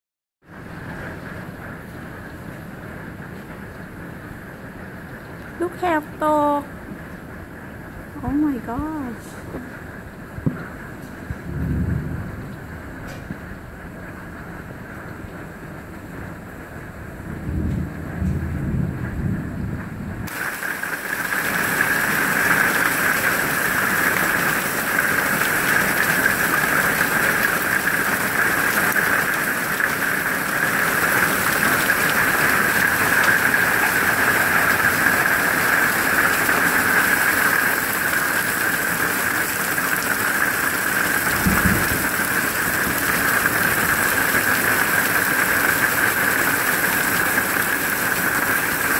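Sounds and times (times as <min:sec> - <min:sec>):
heavy rain and hail pelting: 0:00.4 - 0:48.9
wind rumble on microphone: 0:06.7 - 0:20.3, 0:41.2 - 0:43.9
low thump: 0:10.4 - 0:10.8.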